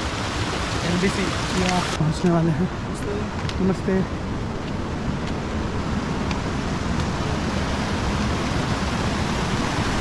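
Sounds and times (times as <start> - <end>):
stream rushing over rocks: 0.0 - 3.8, 5.7 - 10.0.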